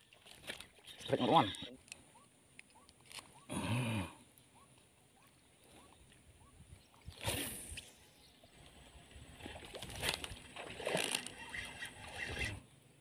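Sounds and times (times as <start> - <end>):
water splashing and sloshing: 0.0 - 2.0, 5.2 - 12.7.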